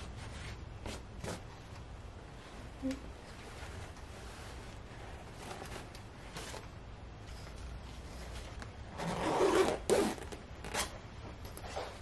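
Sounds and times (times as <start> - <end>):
zipper rasping: 8.9 - 11.0.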